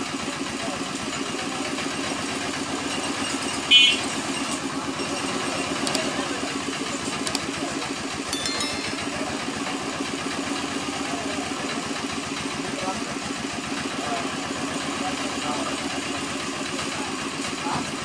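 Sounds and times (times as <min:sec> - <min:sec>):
bright click and chime: 0:08.4 - 0:09.5.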